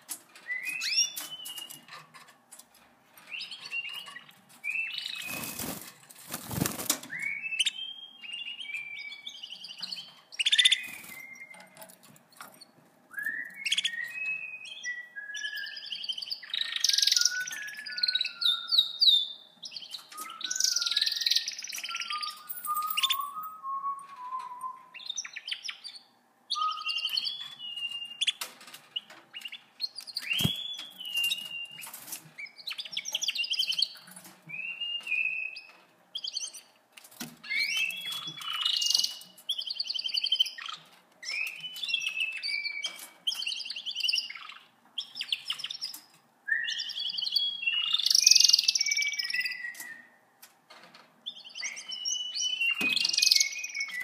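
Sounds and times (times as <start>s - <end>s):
canaries singing: 0.0s - 54.0s
wings flapping: 5.2s - 7.2s, 30.2s - 30.6s.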